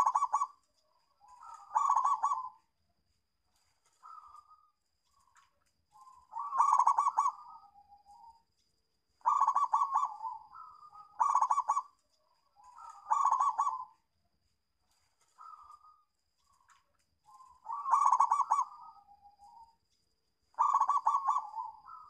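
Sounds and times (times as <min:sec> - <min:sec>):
dove cooing: 0:00.0 - 0:02.7, 0:04.0 - 0:08.4, 0:09.2 - 0:14.1, 0:15.3 - 0:16.6, 0:17.3 - 0:19.8, 0:20.5 - 0:22.0.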